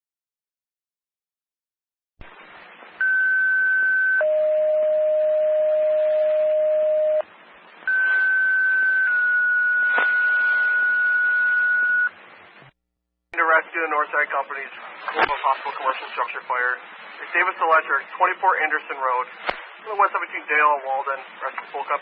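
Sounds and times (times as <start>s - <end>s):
two-tone paging tones: 3.0s - 7.2s
radio hiss: 7.7s - 12.7s, 13.4s - 22.0s
radio click: 9.9s - 10.2s, 15.1s - 15.5s.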